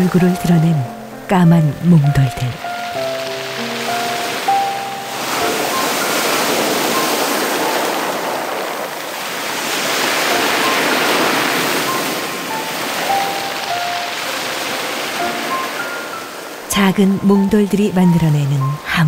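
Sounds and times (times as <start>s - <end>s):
surf washing over pebbles: 2.5s - 16.6s.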